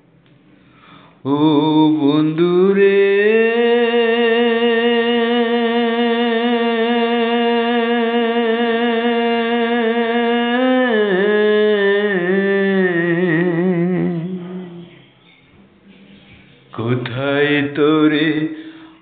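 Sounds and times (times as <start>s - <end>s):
person singing: 1.2s - 15.1s.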